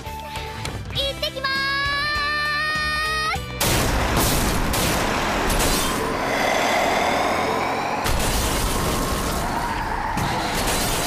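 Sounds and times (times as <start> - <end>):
screeching squeal: 5.8 - 11.0
loud crash: 8.0 - 11.0.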